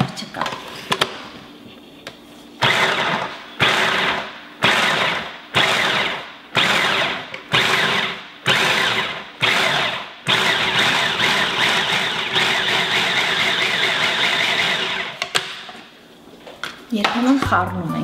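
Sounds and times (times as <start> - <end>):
food processor pulsing: 2.6 - 15.2.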